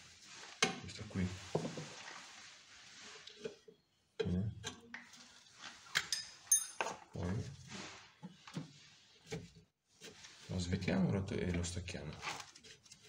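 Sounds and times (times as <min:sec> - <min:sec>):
spanner clinking on metal: 0:06.0 - 0:06.9.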